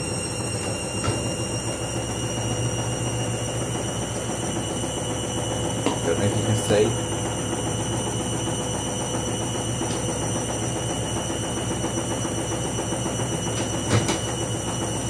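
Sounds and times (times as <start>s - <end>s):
washing machine spinning: 0.0s - 15.0s
washing machine knock: 5.5s - 8.1s, 9.2s - 15.0s.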